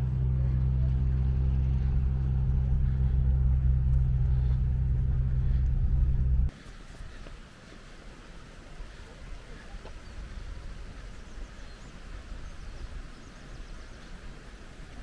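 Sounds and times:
low engine-like hum: 0.0 - 6.6
faint outdoor background noise: 0.0 - 15.0.

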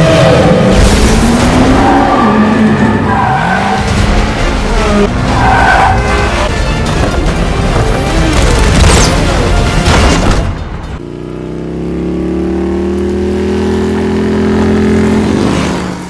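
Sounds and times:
tyres skidding: 0.0 - 11.0
music playing: 3.7 - 10.8
motorcycle engine revving: 10.9 - 16.0.

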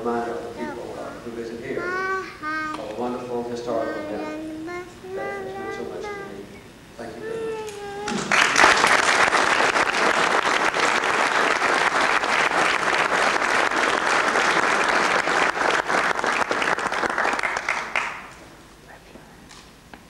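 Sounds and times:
audience applauding: 8.1 - 18.3.

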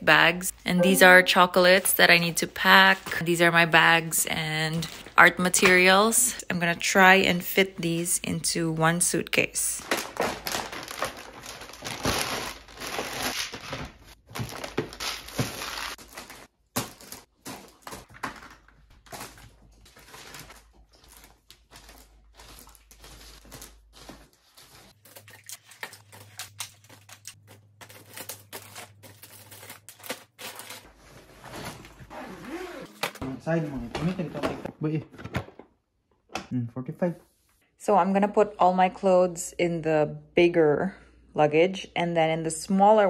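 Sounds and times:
plastic bags crinkling: 9.8 - 30.9.

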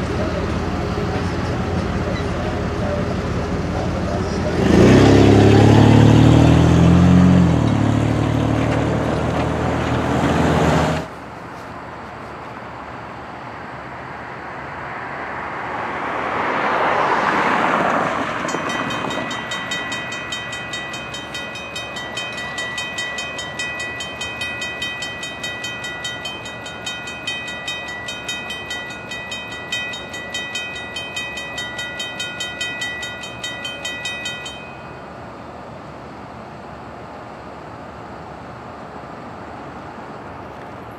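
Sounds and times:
road vehicle passing: 0.0 - 40.9
railroad crossing bell ringing: 17.4 - 35.5.

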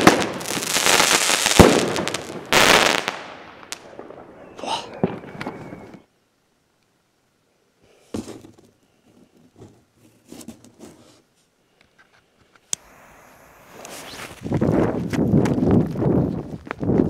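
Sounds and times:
scraping and rustling handling noises: 8.2 - 12.6.

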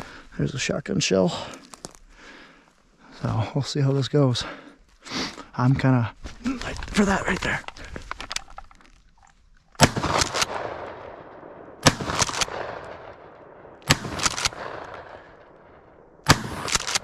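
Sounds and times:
shotgun blasts: 9.8 - 17.0.

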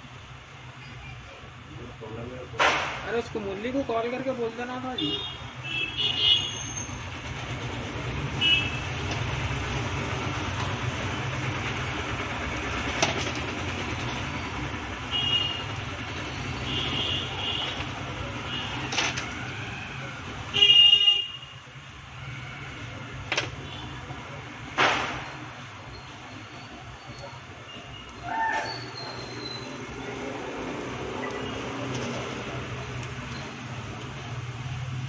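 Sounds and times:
road traffic rumbling: 0.0 - 35.0
vehicle horn toots: 8.3 - 8.9, 20.5 - 21.6.

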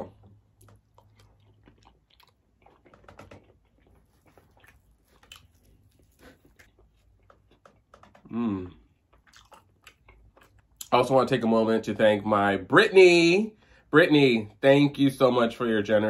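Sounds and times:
close-up chewing: 0.0 - 8.2, 8.8 - 11.0.

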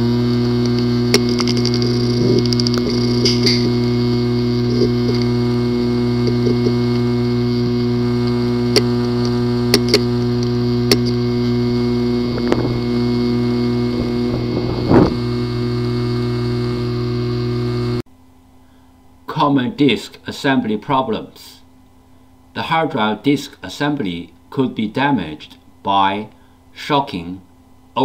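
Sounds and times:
hard drive buzzing hum: 0.0 - 28.0
hard drive clicking: 0.2 - 16.0.

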